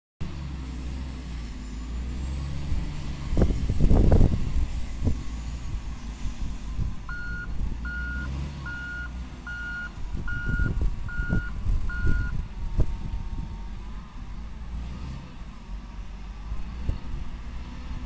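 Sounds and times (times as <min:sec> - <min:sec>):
diesel engine running: 0:00.2 - 0:18.0
back-up alarm beeps: 0:07.1 - 0:12.4.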